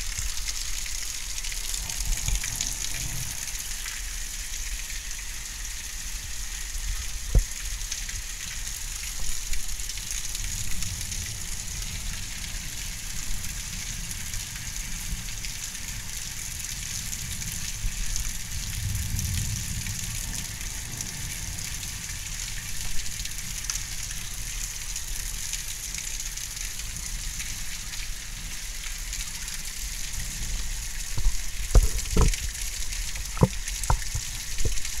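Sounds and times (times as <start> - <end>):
heavy rain falling: 0.0 - 35.0
sharp knocks: 33.4 - 34.0.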